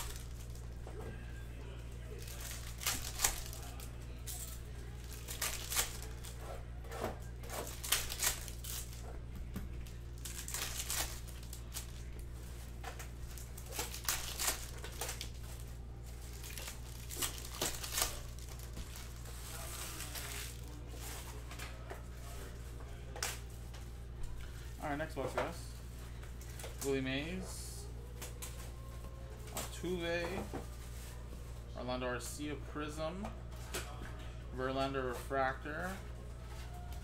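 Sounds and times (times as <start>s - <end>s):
foil wrapper crinkling and tearing: 0.0s - 0.7s, 2.2s - 6.4s, 7.4s - 9.0s, 9.8s - 12.2s, 13.3s - 21.3s.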